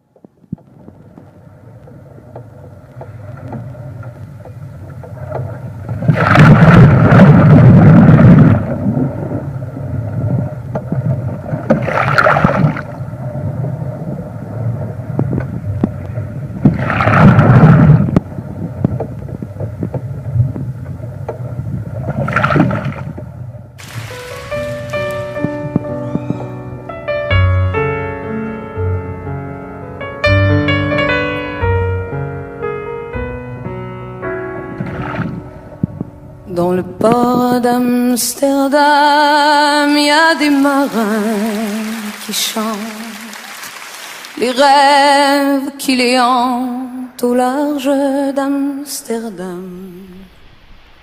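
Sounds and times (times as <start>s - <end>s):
waves surging against hull: 0.6s - 26.0s, 36.5s - 51.0s
steady low rumble: 31.0s - 38.2s.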